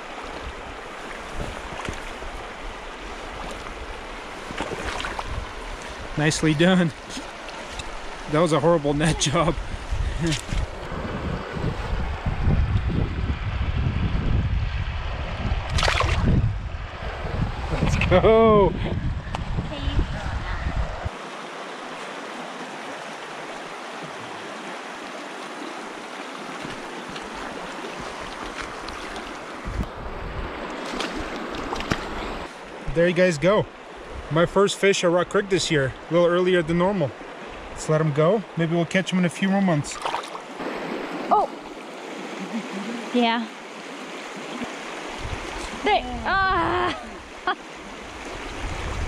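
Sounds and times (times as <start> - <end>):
wind buffeting microphone: 0.0 - 6.5, 7.8 - 21.1, 29.0 - 33.0, 45.1 - 47.4, 48.0 - 49.0
creek water rushing: 0.0 - 49.0.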